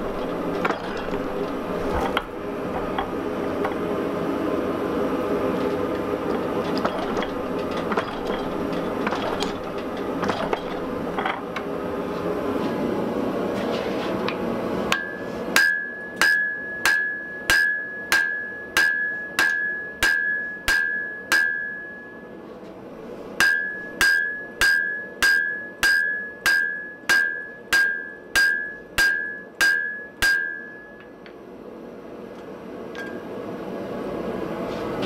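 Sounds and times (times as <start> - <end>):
hammer striking iron on anvil: 14.9 - 22.2, 23.4 - 31.1
high anvil ring: 14.9 - 22.4, 23.4 - 31.1.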